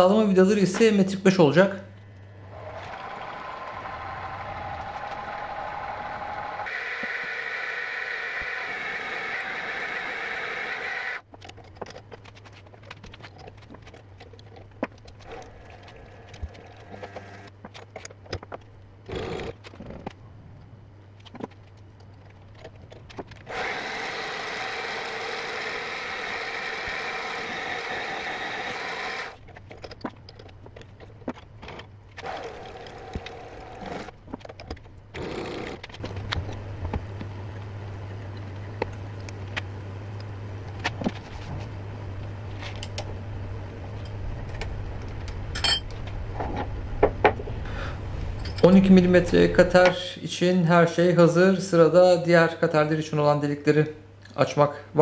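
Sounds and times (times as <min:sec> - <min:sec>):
machine tool motor hum: 0:02.0 - 0:20.0, 0:22.6 - 0:49.9
whining metal cutting: 0:02.6 - 0:11.2, 0:23.5 - 0:29.4.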